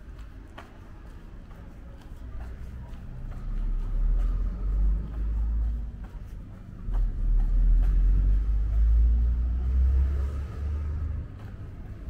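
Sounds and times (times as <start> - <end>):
faint footsteps: 0.0 - 12.0
car passing: 7.0 - 11.7.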